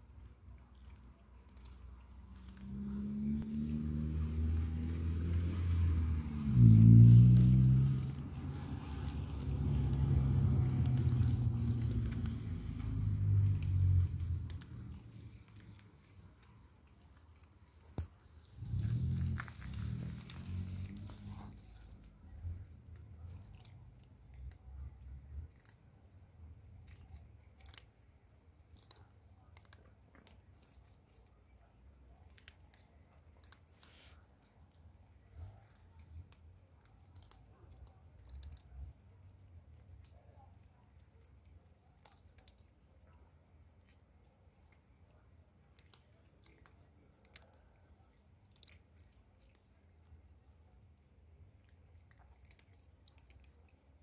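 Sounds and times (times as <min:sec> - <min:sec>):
cats crunching dry kibble: 0:00.0 - 0:54.0
low steady rumble: 0:00.0 - 0:54.0
low rumble: 0:02.5 - 0:16.7, 0:18.4 - 0:25.6.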